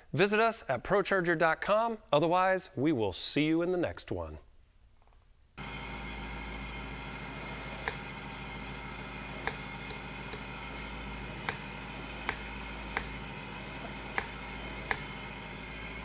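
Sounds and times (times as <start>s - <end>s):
steady hum: 5.6s - 16.0s.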